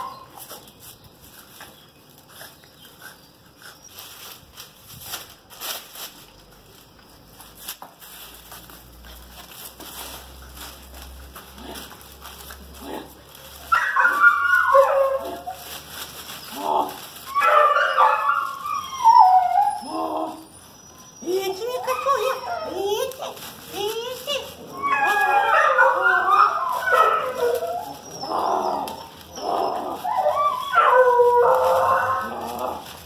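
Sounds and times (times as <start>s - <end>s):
puppies whining and yelping: 0.0s - 0.4s, 13.5s - 23.4s, 24.2s - 33.0s
faint scuffling and ticking: 0.0s - 19.9s, 20.5s - 33.0s.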